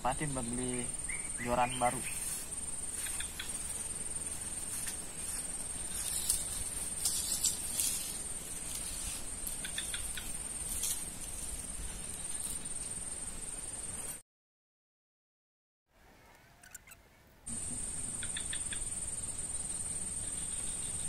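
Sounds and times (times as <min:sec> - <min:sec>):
insects trilling: 0:00.0 - 0:14.2, 0:16.6 - 0:21.0
faint ticks and rustles: 0:02.1 - 0:13.0.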